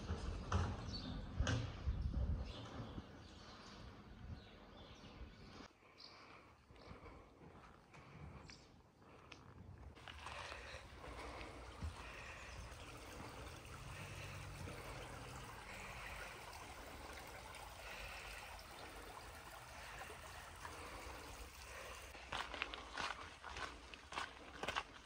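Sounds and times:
footsteps: 10.0 - 12.4, 22.1 - 25.0
stream trickling: 10.0 - 25.0.

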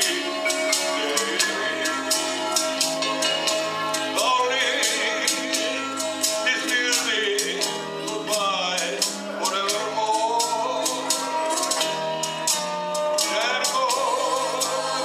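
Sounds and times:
man singing into a microphone: 0.0 - 2.6, 4.1 - 11.3, 13.2 - 15.0
karaoke ballad backing track: 0.0 - 15.0.

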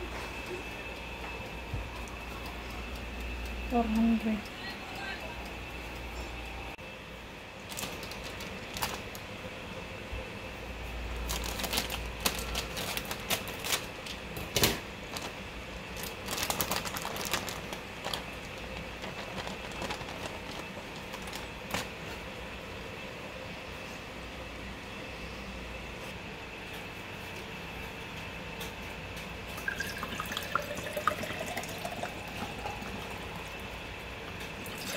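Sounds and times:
plastic bag crinkling: 7.7 - 9.2, 11.2 - 14.0, 15.1 - 15.4, 16.0 - 22.0.

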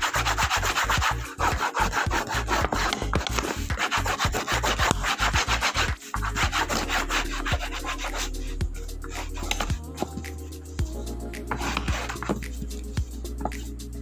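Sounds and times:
hand rubbing book cover: 0.0 - 8.4, 9.0 - 10.2, 11.5 - 13.8.

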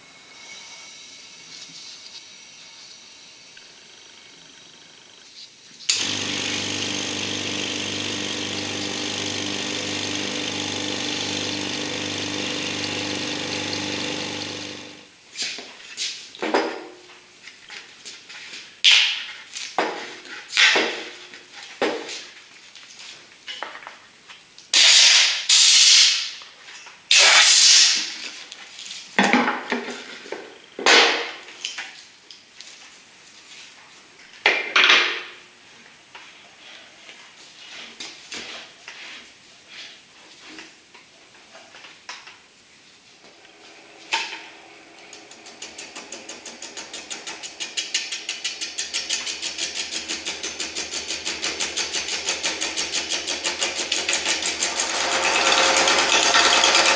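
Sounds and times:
wood lathe running: 5.9 - 15.1, 43.3 - 56.9.

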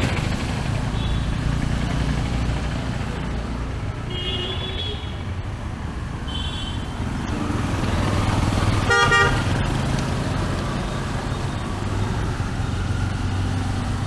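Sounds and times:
auto-rickshaw engine driving by: 0.0 - 14.0
traffic engine rumble: 0.0 - 14.0
vehicle horn blast: 4.1 - 5.2, 8.9 - 9.4.

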